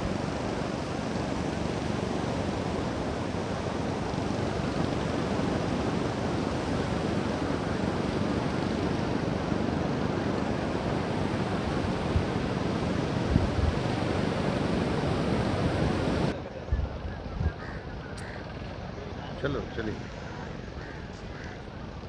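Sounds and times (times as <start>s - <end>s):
surf breaking on a beach: 0.0s - 16.6s
wind blowing across microphone: 0.0s - 22.0s.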